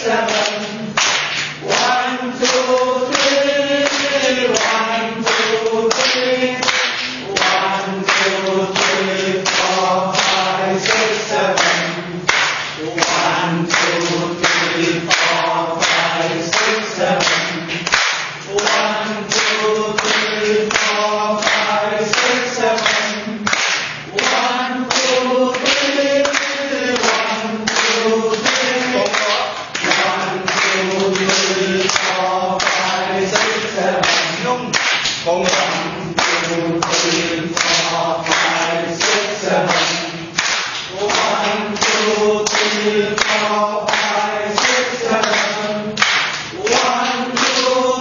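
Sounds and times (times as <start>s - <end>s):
people clapping in rhythm: 0.0s - 48.0s
people singing in unison: 0.0s - 48.0s.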